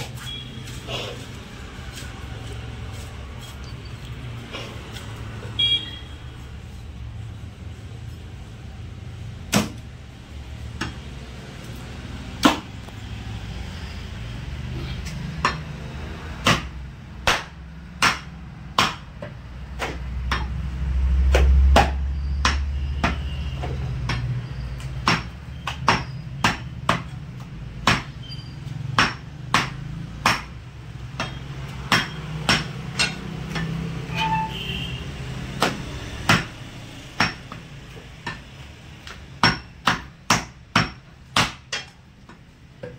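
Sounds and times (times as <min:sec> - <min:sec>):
cleaver chopping on wooden block: 0:09.5 - 0:09.8, 0:12.4 - 0:12.7, 0:16.4 - 0:20.5, 0:21.3 - 0:23.2, 0:25.0 - 0:27.2, 0:27.8 - 0:28.2, 0:29.0 - 0:33.7, 0:39.1 - 0:42.4.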